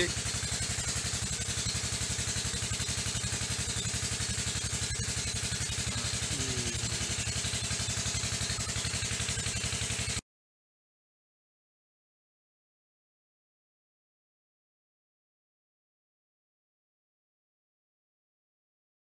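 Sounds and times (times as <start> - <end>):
small engine idling: 0.0 - 10.2.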